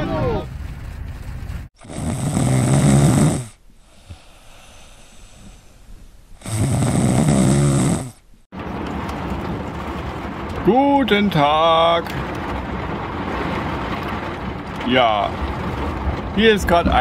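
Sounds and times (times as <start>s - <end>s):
person snoring loudly: 1.8s - 5.6s, 6.4s - 8.2s.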